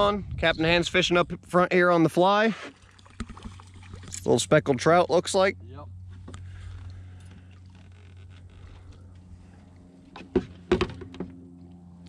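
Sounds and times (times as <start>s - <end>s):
steady low hum: 2.7s - 12.0s
sharp knocks on a boat: 10.1s - 11.4s.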